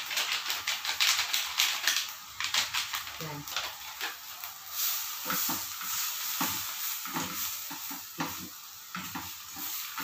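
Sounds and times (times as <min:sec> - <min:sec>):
food sizzling in a pan: 0:00.0 - 0:10.0
spatula scraping a frying pan: 0:04.7 - 0:10.0.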